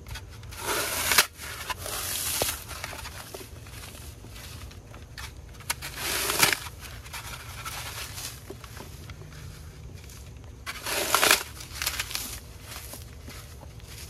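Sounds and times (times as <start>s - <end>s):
floral foam crunching and crumbling: 0.0s - 14.0s.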